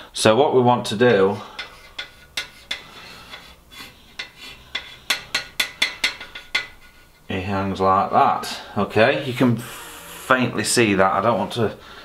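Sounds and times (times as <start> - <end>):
chalk scratching on steel: 1.5 - 7.3.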